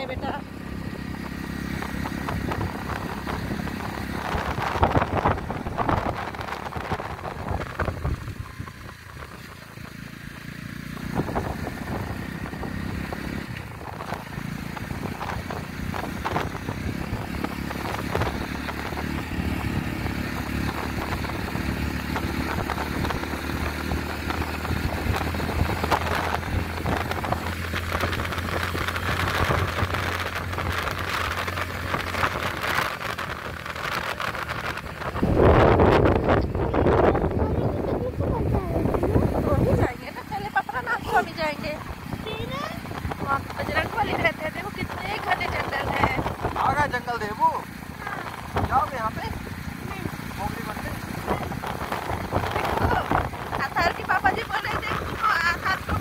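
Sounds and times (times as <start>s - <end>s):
motorcycle engine running: 0.0s - 56.0s
wind and road rumble: 0.0s - 56.0s.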